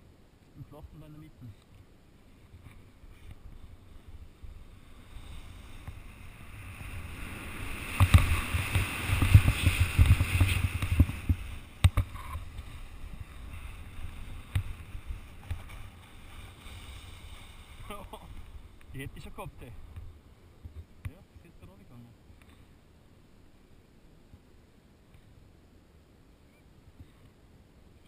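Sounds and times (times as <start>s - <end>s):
wind buffeting microphone: 2.5s - 20.9s
skis running through snow: 4.7s - 18.6s.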